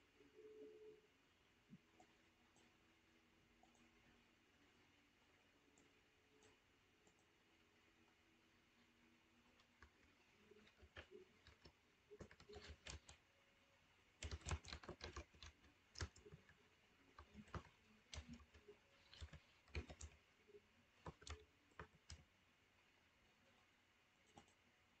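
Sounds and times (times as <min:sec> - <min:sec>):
computer keyboard typing: 0:09.6 - 0:13.2, 0:14.2 - 0:22.3.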